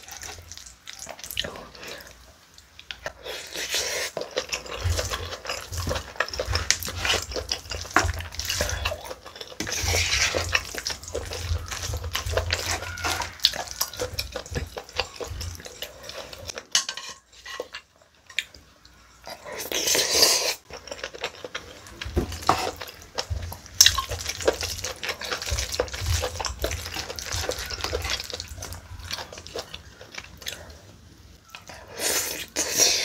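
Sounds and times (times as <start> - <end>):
utensils scraping plastic bowl: 9.6 - 14.8.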